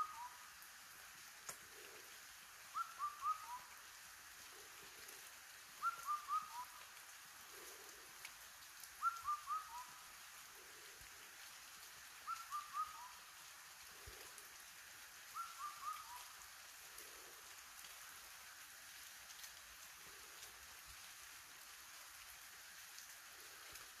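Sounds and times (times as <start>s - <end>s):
bird hooting call: 0.0s - 0.4s, 2.7s - 3.7s, 5.8s - 6.8s, 9.0s - 10.0s, 12.2s - 13.2s, 15.3s - 16.4s
steady rain falling: 0.0s - 24.0s.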